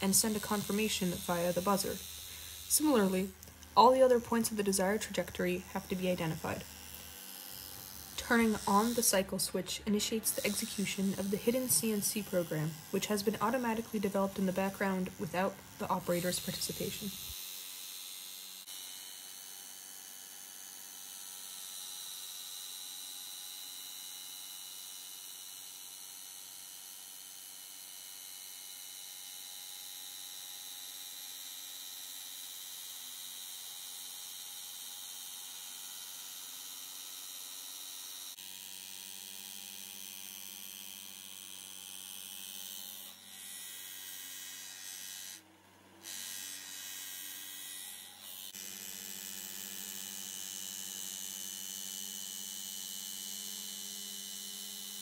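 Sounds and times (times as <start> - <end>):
sanding machine humming and hissing: 0.0 - 21.6.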